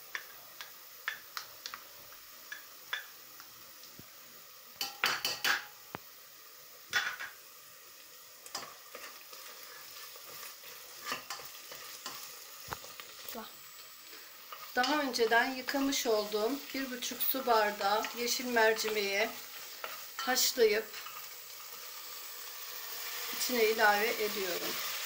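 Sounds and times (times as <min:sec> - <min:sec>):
onion frying in oil: 0:00.0 - 0:25.0
spoon scraping and knocking pot: 0:04.8 - 0:05.7.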